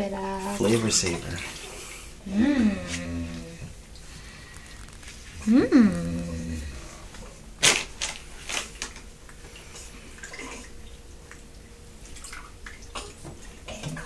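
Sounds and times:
bath water splashing: 0.0s - 14.0s
water dripping: 8.8s - 14.0s.

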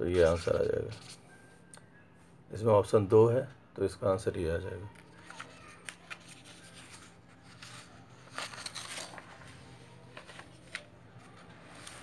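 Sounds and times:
faint low hum: 0.0s - 12.0s
paper rustling: 0.1s - 1.2s, 4.9s - 12.0s.

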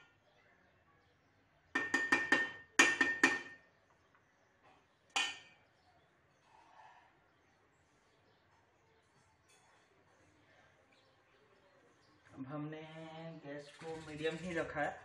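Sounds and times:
metal spoon clanking on pot: 1.8s - 3.6s, 5.1s - 5.6s.

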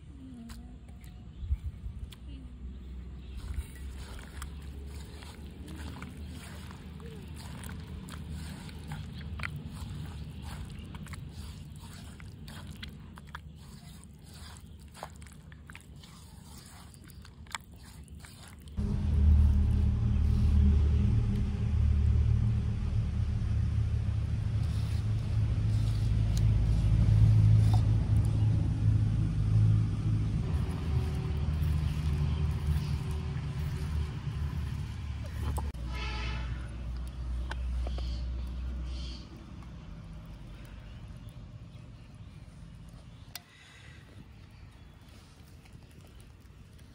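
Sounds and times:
hand mashing wet food: 3.3s - 18.8s, 30.2s - 35.8s
loud low rumble: 18.8s - 38.9s.

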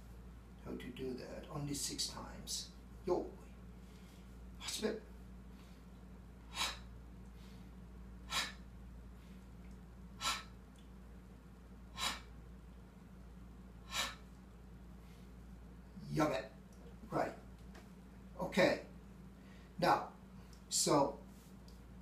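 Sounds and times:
man breathing sharply: 5.5s - 9.5s, 10.2s - 10.6s, 11.9s - 12.4s, 13.8s - 14.4s, 19.3s - 19.8s.

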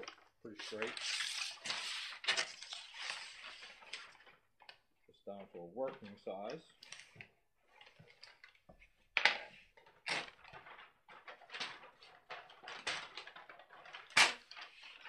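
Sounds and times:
paper rustling: 0.0s - 4.8s, 9.7s - 15.0s.

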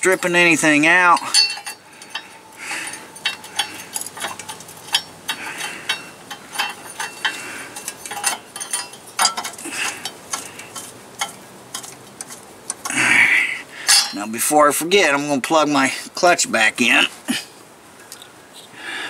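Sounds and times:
hand tools clicking on metal: 0.0s - 13.1s, 13.8s - 14.3s.

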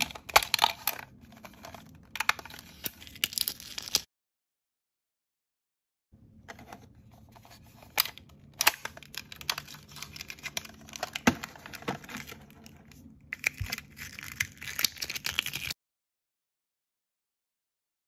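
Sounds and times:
plastic crinkling and rustling: 6.6s - 15.8s.

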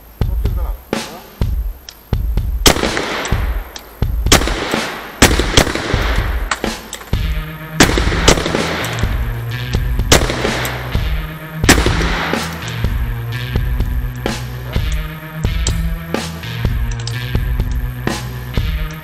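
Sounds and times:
music with heavy beat: 0.0s - 19.0s
revolver shots with echo: 2.7s - 7.2s, 7.8s - 9.3s, 10.1s - 12.8s.

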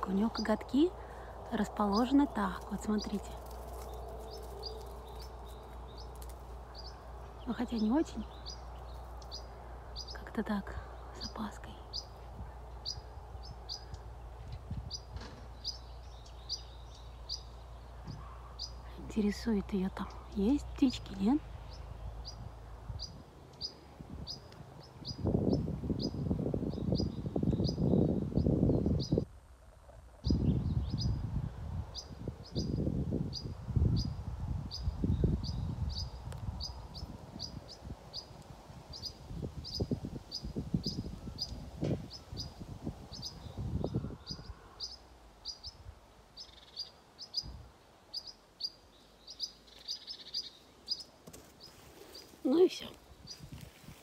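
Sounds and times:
small bird chirping: 1.8s - 31.3s, 31.9s - 53.7s
soft rustling: 51.3s - 54.0s.

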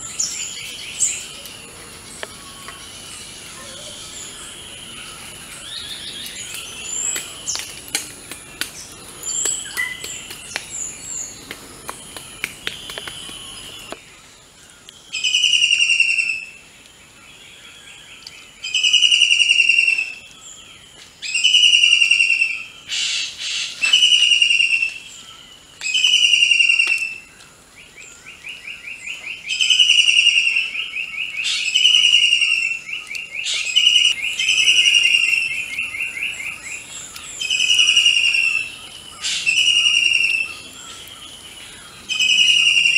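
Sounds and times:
bird calling: 0.0s - 14.0s, 28.5s - 42.9s
light clicks and crackling: 6.1s - 14.0s.

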